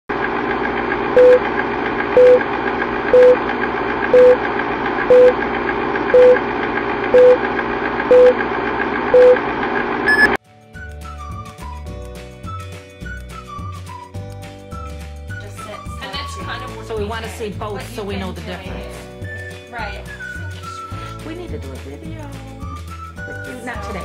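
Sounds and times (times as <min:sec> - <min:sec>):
higher beep: 0:01.2 - 0:01.4, 0:02.2 - 0:02.4, 0:03.1 - 0:03.4, 0:04.2 - 0:04.4, 0:05.1 - 0:05.4, 0:06.2 - 0:06.4, 0:07.2 - 0:07.4, 0:08.1 - 0:08.4, 0:09.2 - 0:09.4, 0:10.1 - 0:10.4
short beeps: 0:01.2 - 0:01.4, 0:02.2 - 0:02.4, 0:03.1 - 0:03.4, 0:04.2 - 0:04.4, 0:05.1 - 0:05.4, 0:06.2 - 0:06.4, 0:07.2 - 0:07.4, 0:08.1 - 0:08.4, 0:09.2 - 0:09.4, 0:10.1 - 0:10.4.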